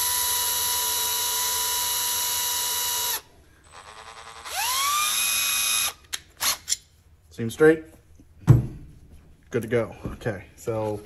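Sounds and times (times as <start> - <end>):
electric drill whining: 0.0 - 6.6.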